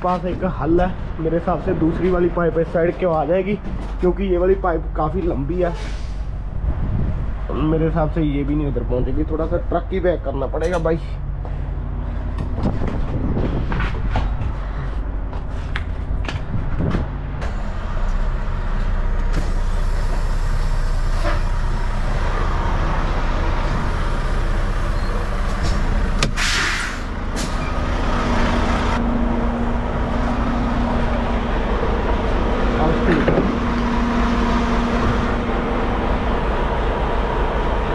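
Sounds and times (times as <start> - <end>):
air brake hiss: 5.8 - 6.3, 26.3 - 27.7
diesel truck engine idling: 17.1 - 37.9.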